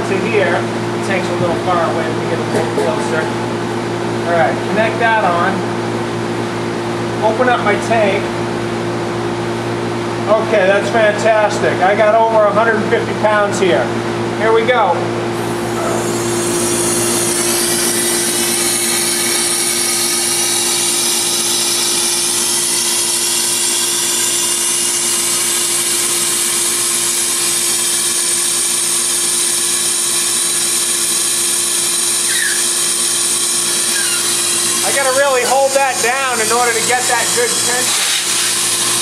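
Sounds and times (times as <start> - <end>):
steady mechanical hum: 0.0 - 39.0
nitrogen gas hissing: 15.4 - 28.8, 32.2 - 39.0.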